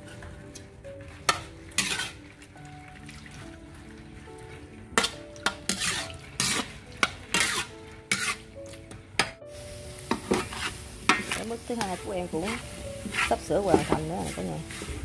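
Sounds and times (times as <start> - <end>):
spatula scraping in a pan: 0.0 - 2.6, 5.0 - 8.5, 9.2 - 15.0.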